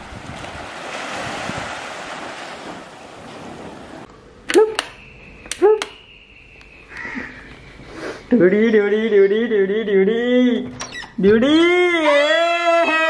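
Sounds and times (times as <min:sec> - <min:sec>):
sea surf: 0:00.0 - 0:04.1
wind noise: 0:00.0 - 0:04.1.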